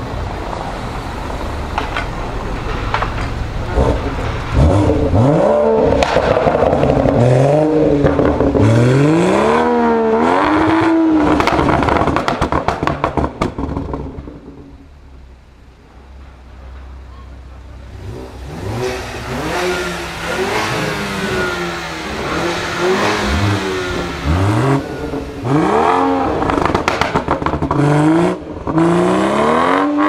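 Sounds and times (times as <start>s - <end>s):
car engine revving: 0.9s - 15.1s, 17.7s - 30.0s
exhaust crackles and pops: 1.4s - 15.2s, 15.9s - 28.9s.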